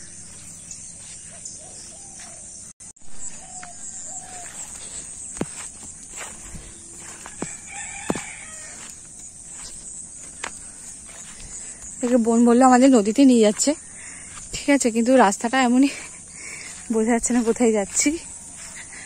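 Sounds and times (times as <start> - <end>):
high-pitched insect trill: 0.0 - 19.0
rooster crowing: 3.2 - 4.9, 6.8 - 9.1.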